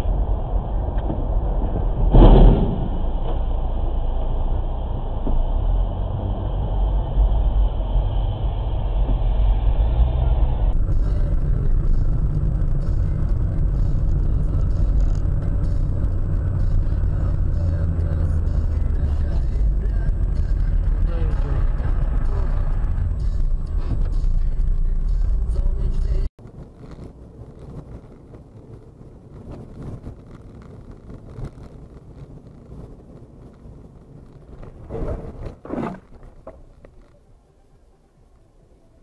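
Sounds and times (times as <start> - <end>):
car engine and road noise: 0.0 - 39.0
loud thump: 1.8 - 3.6.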